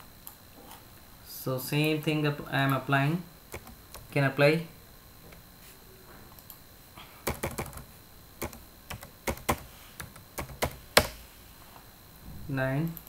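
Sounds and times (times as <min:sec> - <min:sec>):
computer keyboard typing: 0:03.5 - 0:04.1, 0:07.2 - 0:11.2.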